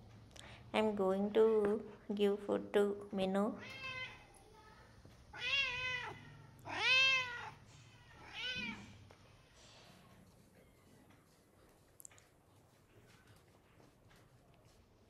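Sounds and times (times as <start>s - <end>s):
cat meowing: 3.6s - 4.3s, 5.3s - 9.0s.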